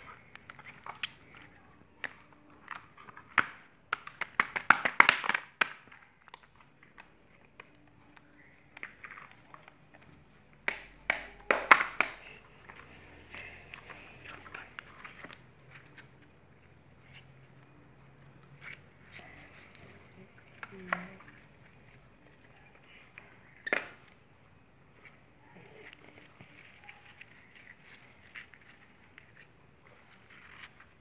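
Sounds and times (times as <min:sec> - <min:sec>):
soft slime squishes: 0:00.0 - 0:31.0
slime clicking and popping: 0:01.9 - 0:06.5.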